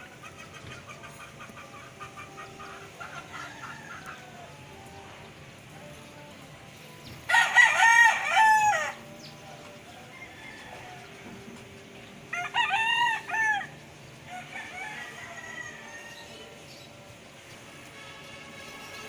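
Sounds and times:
rooster crowing: 2.5s - 5.1s, 7.3s - 9.1s, 9.9s - 11.5s, 12.3s - 16.6s.

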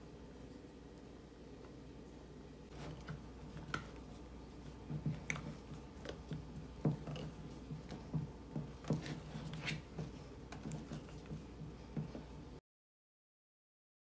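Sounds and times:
spatula stirring sticky batter: 2.7s - 12.6s.

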